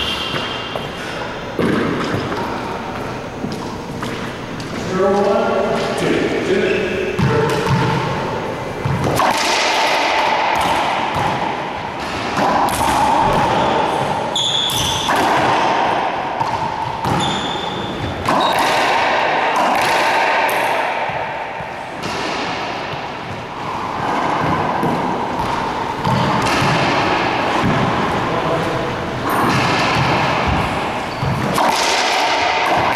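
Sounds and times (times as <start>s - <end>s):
sneakers squeaking on floor: 0.0s - 4.9s, 6.6s - 8.0s, 13.2s - 15.2s, 16.4s - 18.8s, 22.8s - 26.8s, 29.2s - 31.6s
ball cracking off racquets and walls: 1.6s - 5.9s, 8.8s - 28.1s, 29.2s - 32.9s.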